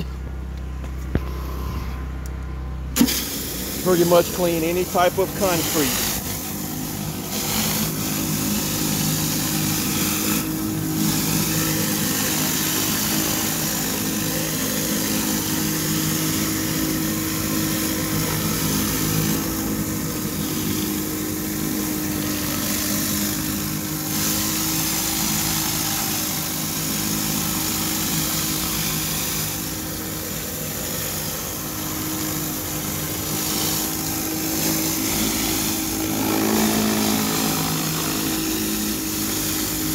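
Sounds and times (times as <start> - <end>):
pressure washer engine drone: 0.0 - 39.9
high-pressure water spraying: 3.0 - 39.9.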